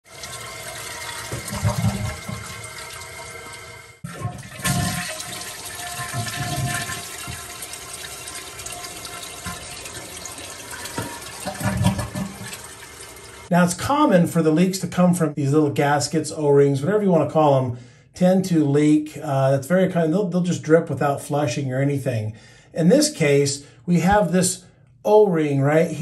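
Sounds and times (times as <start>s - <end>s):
toilet flushing: 0.0s - 13.5s.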